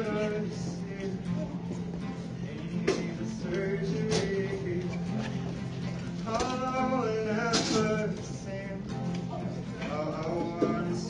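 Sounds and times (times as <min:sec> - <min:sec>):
guitar accompaniment: 0:00.0 - 0:11.0
person singing: 0:02.4 - 0:05.2, 0:06.2 - 0:11.0.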